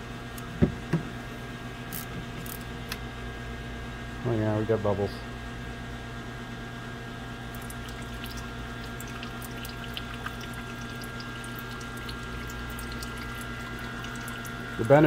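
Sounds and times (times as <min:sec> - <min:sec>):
steady low hum: 0:00.0 - 0:15.0
small splashes and crackles: 0:07.5 - 0:14.8
brake fluid trickling: 0:07.5 - 0:15.0.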